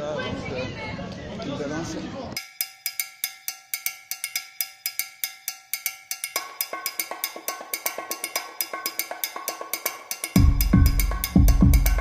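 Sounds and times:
street percussion group drumming: 6.2s - 12.0s.

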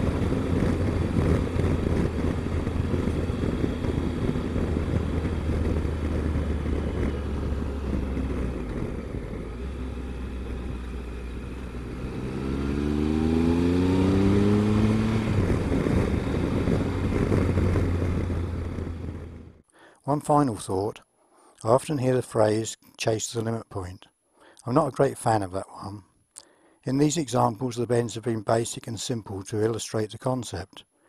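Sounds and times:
motorcycle engine accelerating: 0.0s - 19.6s
wind noise: 0.0s - 19.6s.

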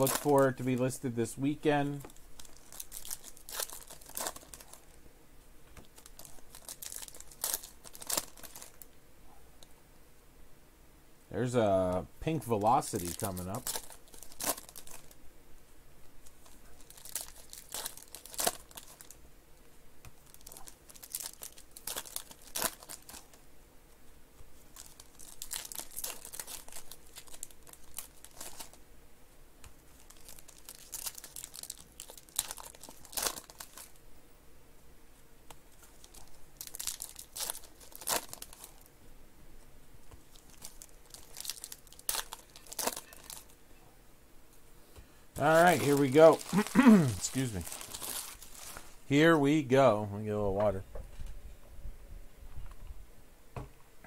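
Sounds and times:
foil wrappers crinkling and tearing: 0.0s - 5.0s, 5.8s - 8.9s, 12.4s - 15.2s, 16.2s - 19.2s, 20.2s - 23.4s, 24.6s - 28.8s, 29.9s - 34.0s, 35.7s - 38.9s, 40.1s - 43.6s, 45.4s - 49.0s.

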